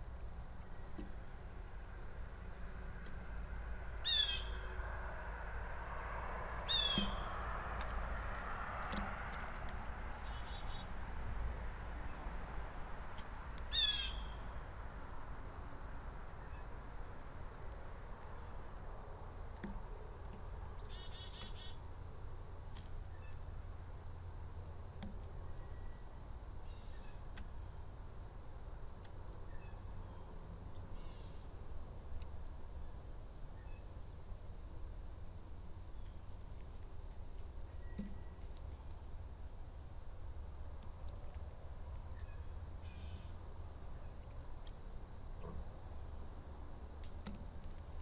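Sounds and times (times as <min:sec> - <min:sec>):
small birds chirping: 0:00.0 - 0:03.0, 0:04.0 - 0:04.7, 0:06.6 - 0:08.5, 0:09.2 - 0:15.3, 0:16.4 - 0:19.2, 0:20.2 - 0:21.8, 0:35.9 - 0:39.0, 0:40.4 - 0:44.5, 0:45.4 - 0:46.0
blue jay harsh calls: 0:04.0 - 0:04.7, 0:06.7 - 0:07.3, 0:13.7 - 0:15.0, 0:20.8 - 0:21.8.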